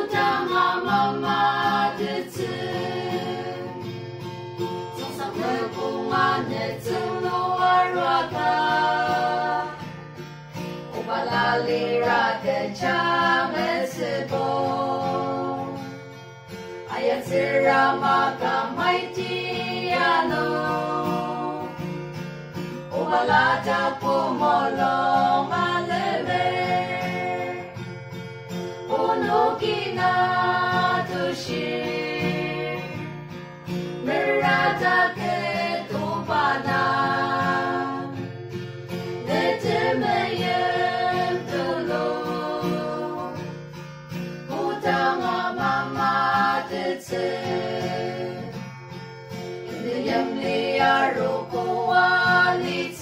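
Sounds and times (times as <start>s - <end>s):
women singing together: 0.0s - 4.0s, 4.9s - 10.0s, 10.9s - 15.9s, 16.8s - 21.9s, 22.9s - 27.8s, 28.9s - 33.1s, 34.0s - 38.4s, 39.2s - 43.6s, 44.4s - 48.7s, 49.6s - 53.0s
strummed acoustic guitar: 0.0s - 53.0s.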